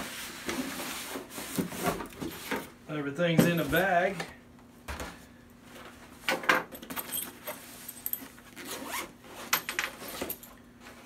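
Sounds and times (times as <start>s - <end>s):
zipper on fabric bag opening: 8.5s - 9.1s.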